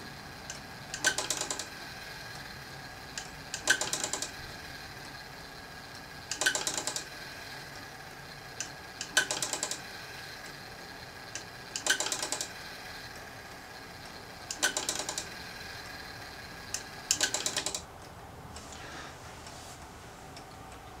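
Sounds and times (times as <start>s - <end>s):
clock mechanism clicking: 0.4s - 2.5s, 3.1s - 5.2s, 5.9s - 7.9s, 8.5s - 18.2s.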